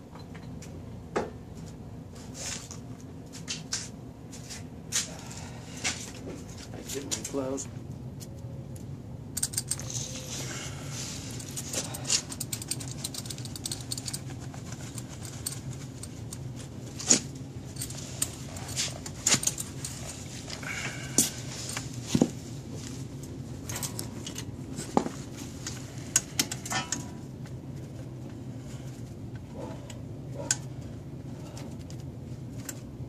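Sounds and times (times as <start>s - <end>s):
steady low hum: 0.0s - 33.0s
metal parts clicking and clinking: 9.3s - 10.4s, 11.2s - 20.6s, 26.1s - 27.2s.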